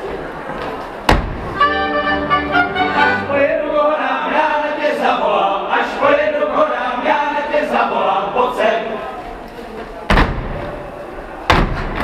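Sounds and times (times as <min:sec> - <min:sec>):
group singing unaccompanied: 0:01.6 - 0:09.2.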